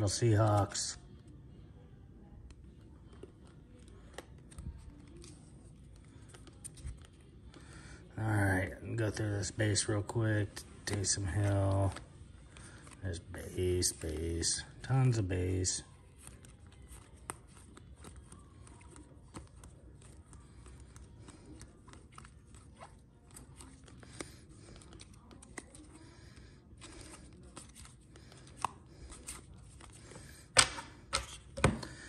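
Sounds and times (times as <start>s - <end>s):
trading cards flipped by hand: 2.7s - 7.6s, 10.7s - 13.0s, 16.1s - 26.0s, 26.8s - 32.0s
cards snapping and crinkling: 16.1s - 26.0s, 26.8s - 32.0s.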